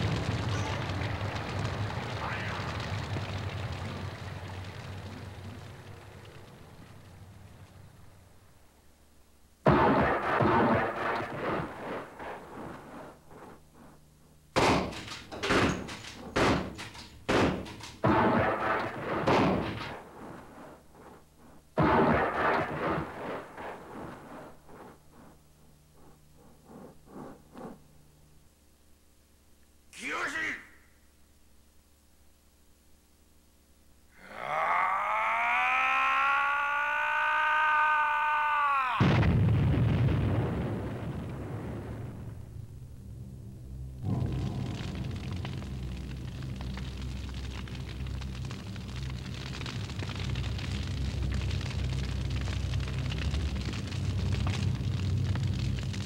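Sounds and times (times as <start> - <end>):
explosion with deep rumble: 0.0 - 8.2, 9.6 - 13.0, 14.6 - 20.4, 21.8 - 24.3, 38.9 - 56.0
heavy slamming impacts: 14.6 - 20.1.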